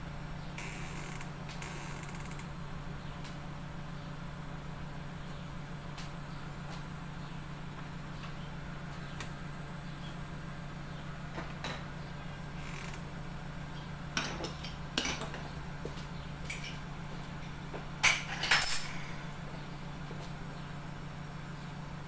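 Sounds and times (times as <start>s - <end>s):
steady low hum: 0.0s - 22.0s
pots and utensils clattering: 14.2s - 15.4s, 18.0s - 19.1s.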